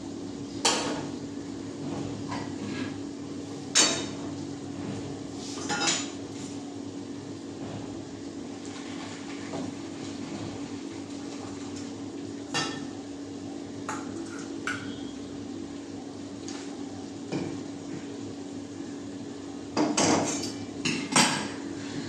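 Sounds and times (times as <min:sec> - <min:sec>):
metal bowls clanking on a stove: 0:12.5 - 0:13.0, 0:13.9 - 0:15.1, 0:19.8 - 0:22.0.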